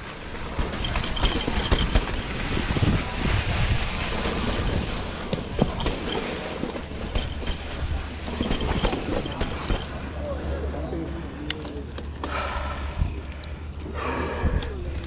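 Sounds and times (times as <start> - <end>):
bike clicking and rattling: 0.0 - 10.4
tyres rumbling on dirt trail: 0.0 - 15.0.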